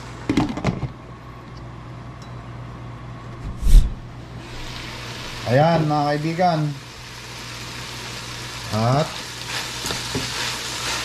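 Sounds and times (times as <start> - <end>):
steady low hum: 1.0 - 5.4.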